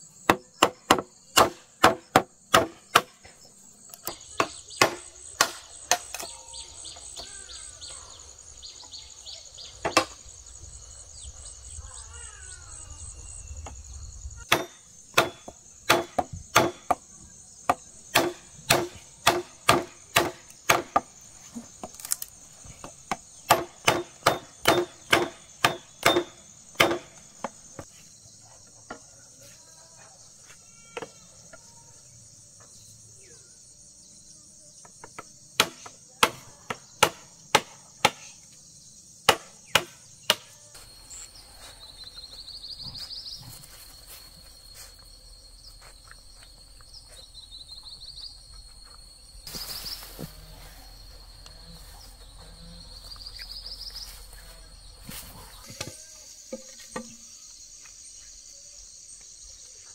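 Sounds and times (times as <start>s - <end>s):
high insect drone: 0.0s - 59.9s
tool striking wood: 0.3s - 3.2s, 9.8s - 10.2s, 14.5s - 17.0s, 17.7s - 21.1s, 23.1s - 27.6s.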